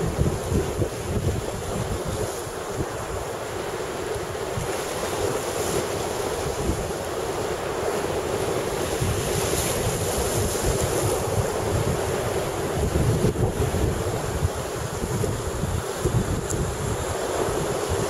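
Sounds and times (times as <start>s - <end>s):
sea surf washing over rocks: 0.0s - 18.0s
wind buffeting microphone: 0.0s - 18.0s.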